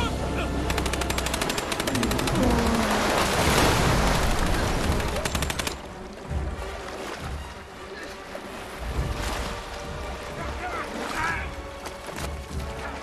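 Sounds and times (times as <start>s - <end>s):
rapid automatic gunfire: 0.7s - 2.3s, 4.8s - 5.8s.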